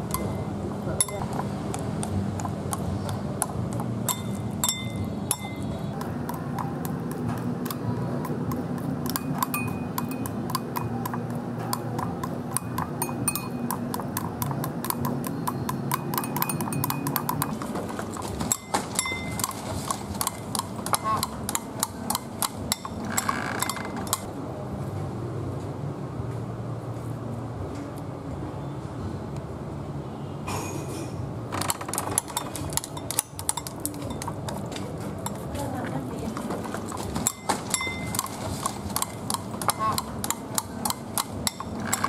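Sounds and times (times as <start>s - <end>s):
spoon and chopsticks clinking bowl: 0.1s - 1.4s, 4.0s - 5.7s, 9.0s - 13.9s, 14.8s - 17.6s, 18.4s - 19.6s, 20.2s - 23.0s, 32.3s - 34.6s, 35.2s - 35.6s, 36.3s - 38.4s, 39.0s - 42.0s.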